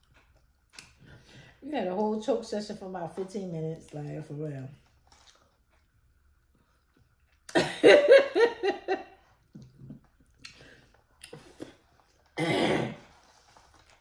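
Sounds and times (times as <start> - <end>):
woman laughing: 7.5 - 9.2.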